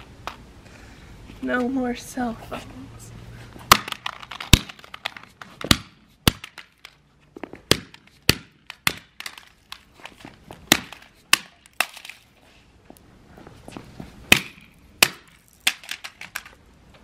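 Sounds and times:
mallet smashing plastic remote: 3.7 - 6.9.

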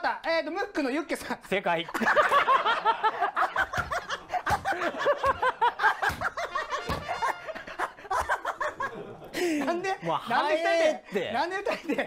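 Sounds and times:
men laughing: 1.8 - 10.8, 11.6 - 12.0.

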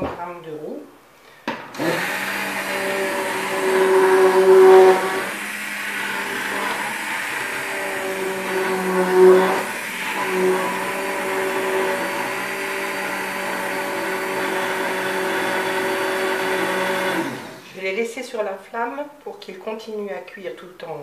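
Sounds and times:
immersion blender motor hum: 1.7 - 17.8.

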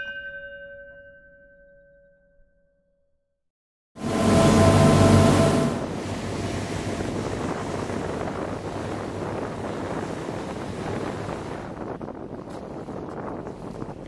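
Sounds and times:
sea rushing around boat: 4.0 - 14.0
wind buffeting microphone: 4.1 - 14.0.

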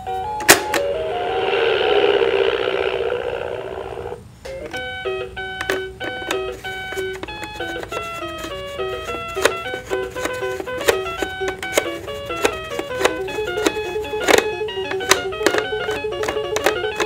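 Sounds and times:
electronic beeping melody: 0.3 - 5.3
buzzing electronic sound effect: 1.0 - 4.3.

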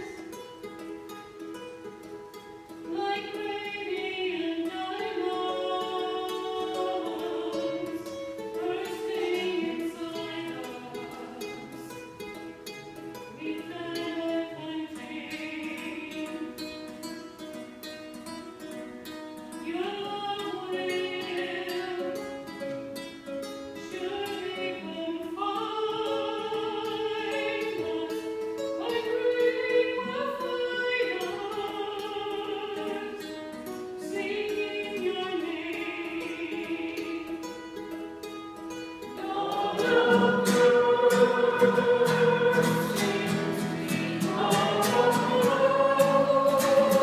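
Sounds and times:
plucked acoustic guitar: 0.0 - 47.0
choir singing: 3.0 - 12.2, 13.3 - 16.6, 24.0 - 33.3, 34.0 - 37.3, 39.0 - 47.0.

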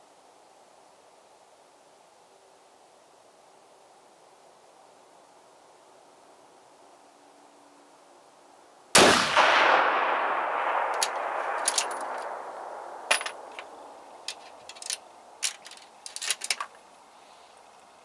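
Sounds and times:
rifle shot with echo: 9.0 - 14.0
rifle bolt clicking: 10.9 - 12.3.

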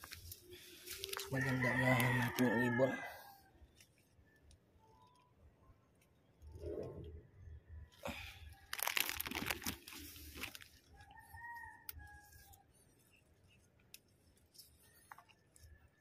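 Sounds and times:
leaves and stems rustling: 0.0 - 4.2, 8.1 - 15.7
rooster crowing: 1.3 - 3.5, 11.0 - 12.6.

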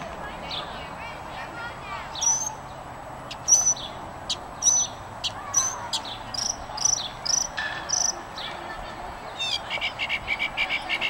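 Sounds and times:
catbird singing: 2.1 - 8.5, 9.3 - 11.0.

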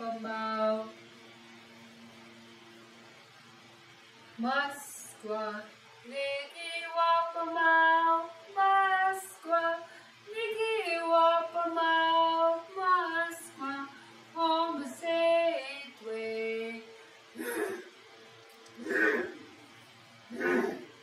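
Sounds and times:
woman singing unaccompanied: 0.0 - 1.0, 4.4 - 16.9.

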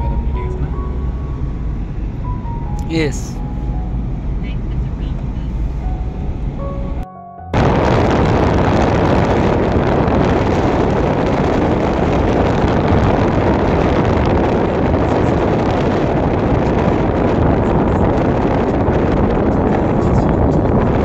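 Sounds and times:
road noise: 0.0 - 21.0
wind rushing past car: 0.0 - 21.0
wind buffeting microphone: 7.6 - 21.0.

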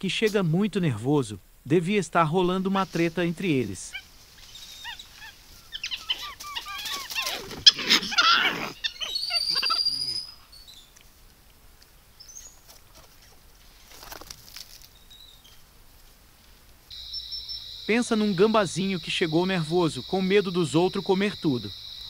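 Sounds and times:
monkeys squealing: 3.4 - 10.6
high whistled monkey call: 3.8 - 10.8, 16.9 - 22.0.

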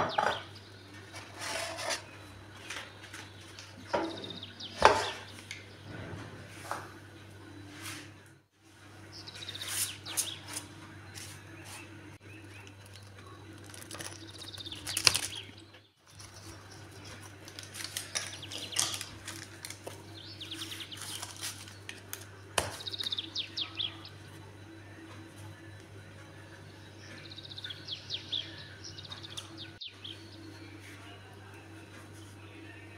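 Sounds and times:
birds chirping in trills: 0.0 - 7.7, 8.8 - 32.9
pizza cutter crunching crust: 12.6 - 23.2.

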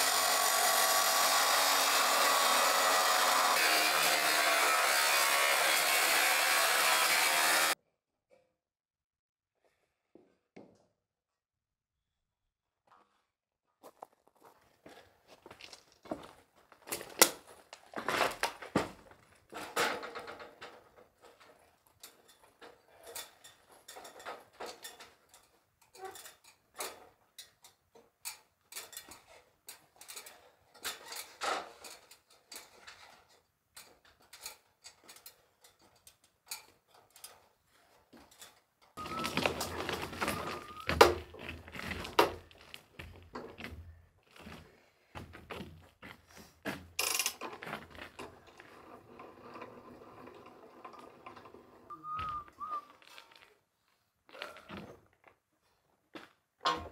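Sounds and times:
footsteps on metal ladder: 28.7 - 48.8.

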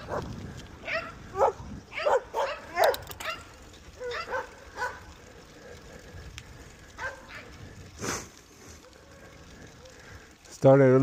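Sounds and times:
dog barking: 0.8 - 5.1, 7.0 - 7.5.

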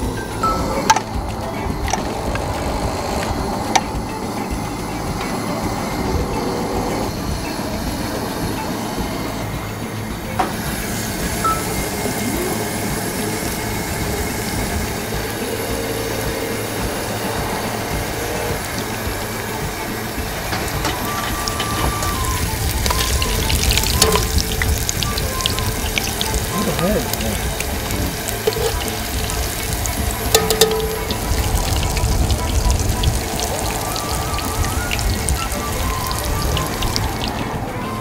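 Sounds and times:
gas stove burners rumbling: 0.0 - 38.0
food sizzling in hot oil: 10.4 - 37.5.

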